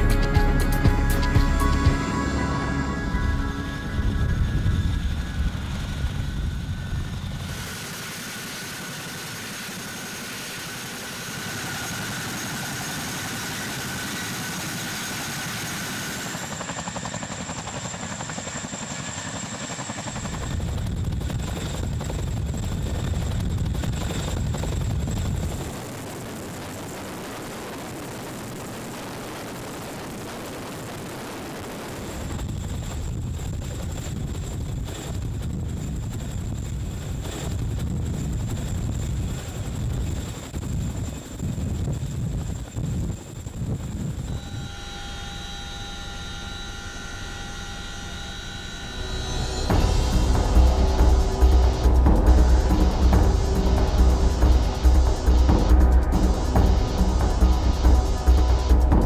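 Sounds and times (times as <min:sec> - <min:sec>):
thin high whine: 0:00.0 - 0:20.8, 0:44.1 - 0:59.0
helicopter hovering: 0:00.0 - 0:59.0.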